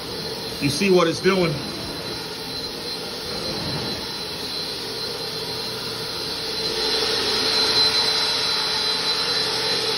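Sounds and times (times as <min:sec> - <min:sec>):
vacuum motors whining: 0:00.0 - 0:09.9.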